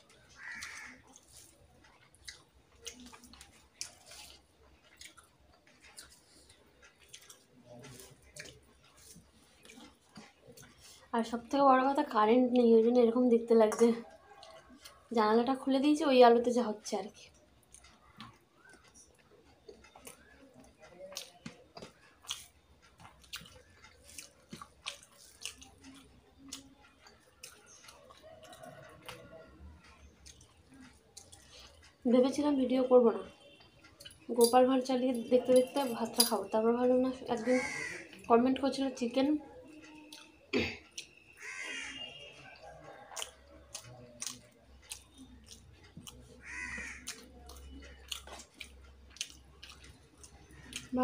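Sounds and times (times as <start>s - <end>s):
chewing and mouth smacks: 0.0s - 11.1s, 17.3s - 32.0s, 39.8s - 41.3s, 42.0s - 51.0s
crow cawing: 0.4s - 1.0s, 37.4s - 38.2s, 41.4s - 42.3s, 46.4s - 47.2s.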